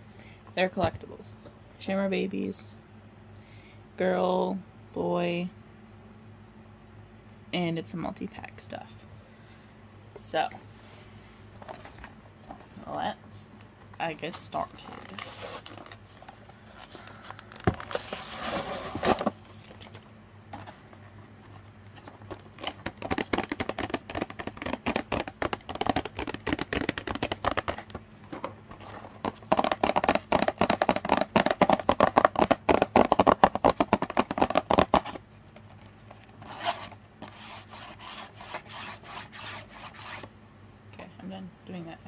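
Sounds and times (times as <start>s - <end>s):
packaging crackling and rustling: 14.3s - 37.0s
packaging tearing: 17.0s - 20.0s.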